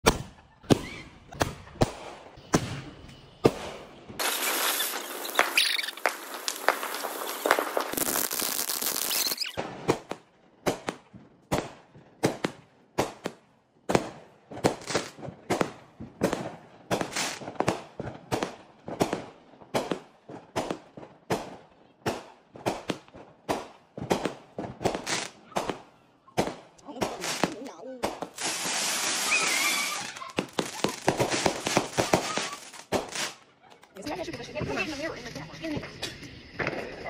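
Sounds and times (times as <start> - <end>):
firework bangs: 0.0 - 33.5
firework fountain hissing: 4.2 - 9.6, 17.0 - 17.6, 24.9 - 25.4, 26.9 - 33.4.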